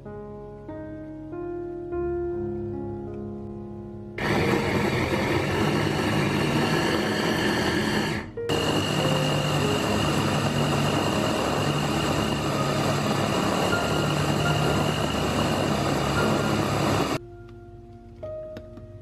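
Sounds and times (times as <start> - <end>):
electric chopper motor running: 4.2 - 17.2.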